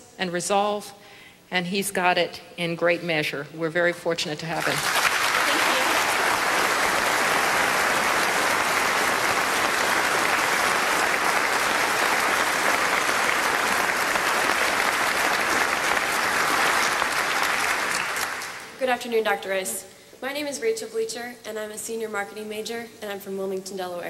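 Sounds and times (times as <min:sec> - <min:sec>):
large audience applauding: 0:04.6 - 0:18.8.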